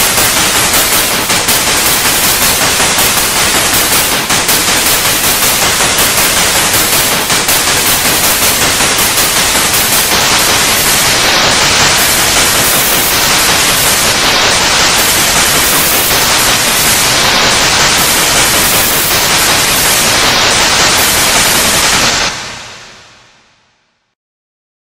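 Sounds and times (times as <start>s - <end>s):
tv static hiss: 0.0s - 24.1s.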